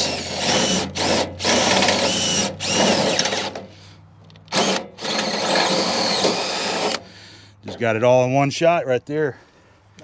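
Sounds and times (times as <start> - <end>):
cordless drill drilling rivet: 0.0 - 3.7, 4.3 - 7.0.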